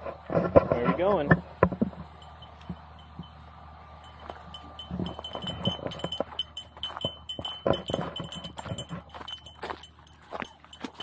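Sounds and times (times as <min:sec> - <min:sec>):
dog collar tags jingling: 0:04.0 - 0:11.0
footsteps on gravel: 0:04.0 - 0:11.0.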